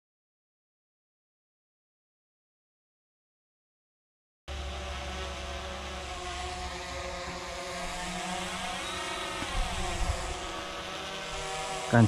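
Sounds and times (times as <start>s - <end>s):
drone propellers whining: 4.5s - 12.0s.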